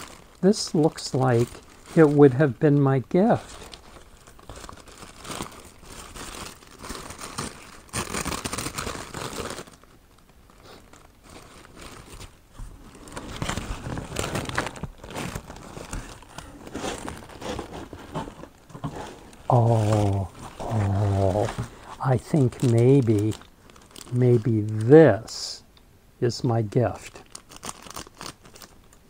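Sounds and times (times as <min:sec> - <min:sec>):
tissue paper crinkling: 0:00.0 - 0:25.3, 0:26.9 - 0:28.8.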